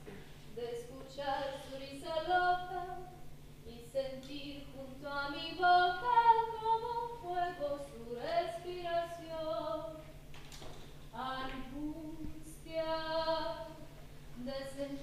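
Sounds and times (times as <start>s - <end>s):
woman singing unaccompanied: 0.5s - 10.1s, 11.1s - 15.0s.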